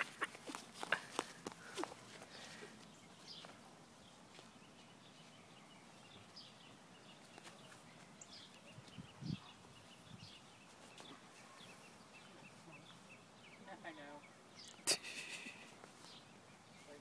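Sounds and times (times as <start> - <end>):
faint bird chirps: 4.6 - 17.0.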